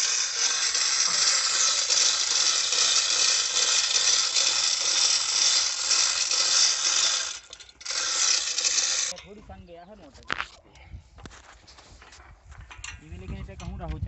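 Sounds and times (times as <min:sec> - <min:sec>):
ratchet clicking: 0:00.0 - 0:09.2
chain rattling through hoist: 0:00.0 - 0:09.4.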